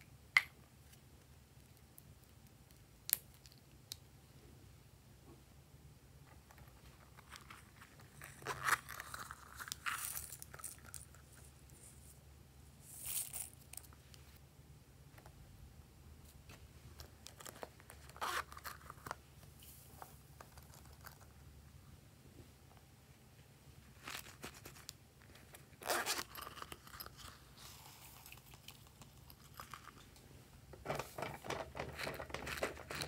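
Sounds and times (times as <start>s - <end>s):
scratchy crinkly pouch rustles: 6.8s - 12.2s, 23.9s - 30.0s.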